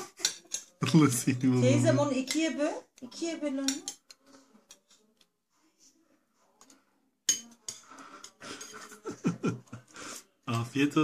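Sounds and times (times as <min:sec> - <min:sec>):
spoon clinking against bowl: 0:00.2 - 0:01.0, 0:07.3 - 0:09.0.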